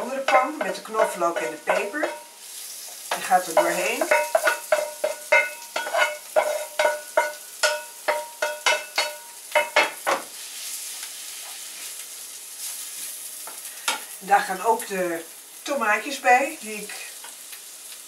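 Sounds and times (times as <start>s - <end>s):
spatula knocking frying pan: 0.0s - 2.3s, 3.1s - 10.3s
soft frying sizzle: 0.0s - 18.0s.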